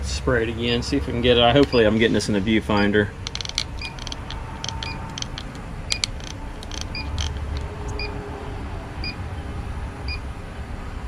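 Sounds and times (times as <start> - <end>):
steady low rumble: 0.0 - 10.2
leak detector beeping: 1.6 - 2.0, 2.7 - 8.2.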